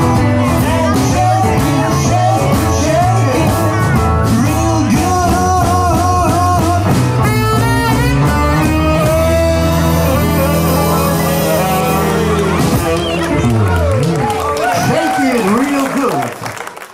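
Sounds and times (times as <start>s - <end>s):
person singing: 0.0s - 13.8s
live rock and roll band: 0.0s - 16.5s
saxophone: 6.8s - 14.4s.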